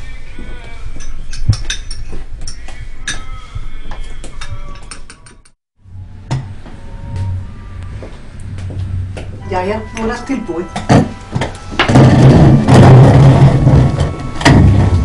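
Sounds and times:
steady low hum: 0:05.8 - 0:10.5
low rumble: 0:11.6 - 0:15.0.

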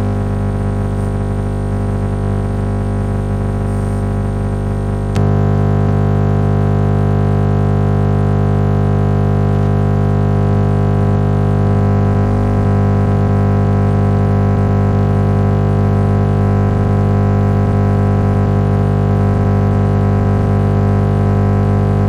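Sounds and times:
radio interference buzz: 0:00.0 - 0:22.0
radio click: 0:05.0 - 0:05.4.

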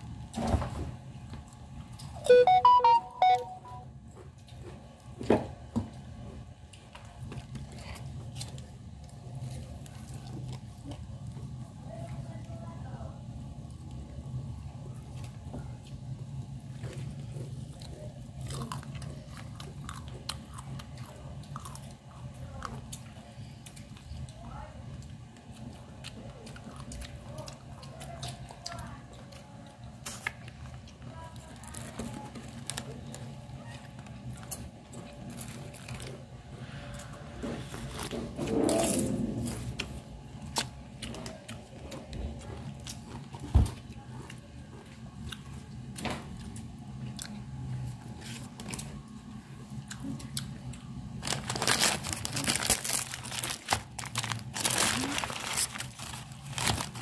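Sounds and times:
low steady hum: 0:00.0 - 0:57.0
short electronic beeps: 0:02.2 - 0:03.8
person chewing food: 0:15.1 - 0:24.4, 0:25.0 - 0:31.0, 0:39.4 - 0:57.0.

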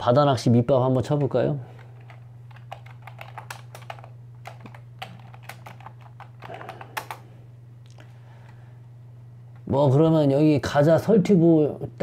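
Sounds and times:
steady low hum: 0:00.0 - 0:12.0
typing on a computer keyboard: 0:01.8 - 0:07.2.

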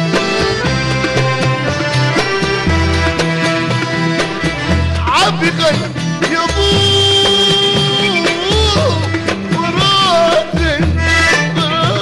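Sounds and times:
violin section bowing melody: 0:00.0 - 0:08.4.

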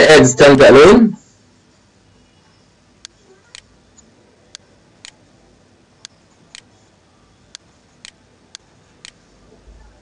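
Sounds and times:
computer mouse clicks: 0:07.5 - 0:09.2.

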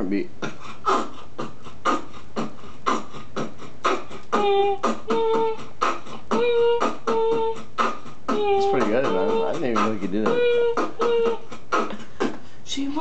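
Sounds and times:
beatboxing drum sounds: 0:00.0 - 0:12.9
pitched vocal notes: 0:00.0 - 0:13.0.

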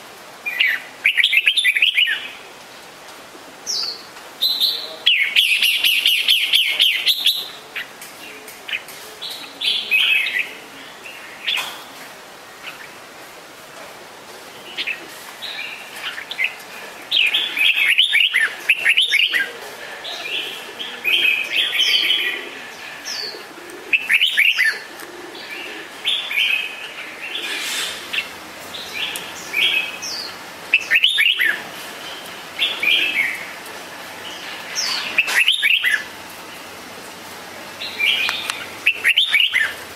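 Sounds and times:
birds chirping: 0:14.5 - 0:39.9.

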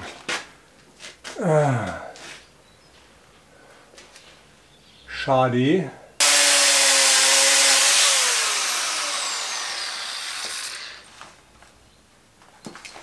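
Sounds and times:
angle grinder grinding steel: 0:06.2 - 0:11.1
angle grinder winding down: 0:06.2 - 0:11.1.

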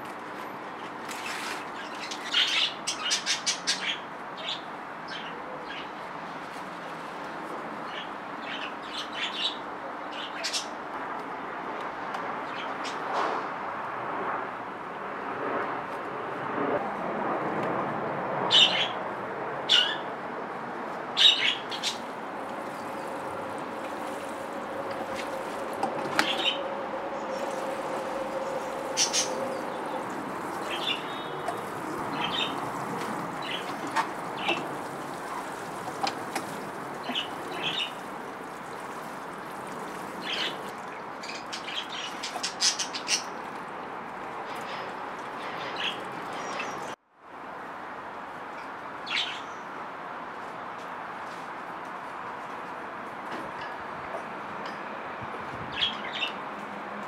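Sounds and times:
small birds chirping: 0:21.2 - 0:23.2, 0:28.5 - 0:35.6, 0:36.4 - 0:38.8, 0:40.2 - 0:43.4.

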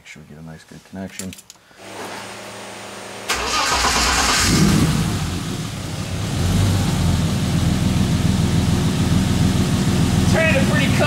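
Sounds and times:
car engine cranking and idling: 0:02.3 - 0:11.0.

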